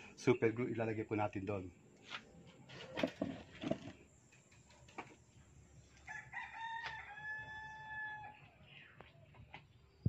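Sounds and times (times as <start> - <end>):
rooster crowing: 6.0 - 8.6.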